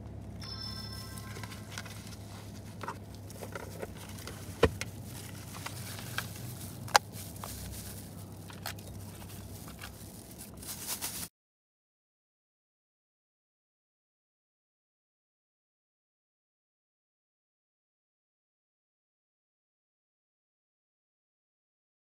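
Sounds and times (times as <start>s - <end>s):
low hum inside car: 0.0s - 11.3s
paper box and gloves rustling: 1.3s - 11.3s.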